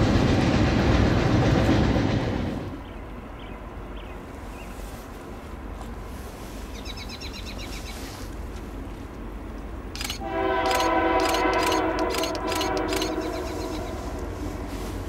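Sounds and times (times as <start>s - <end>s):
sharp clicks: 9.9s - 13.8s
locomotive air horn: 10.2s - 15.0s.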